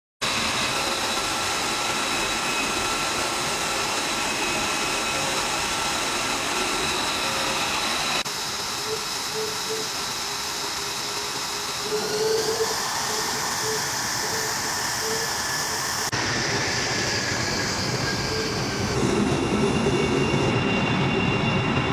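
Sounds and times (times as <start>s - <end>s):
jet engine running with whine: 0.2s - 21.9s.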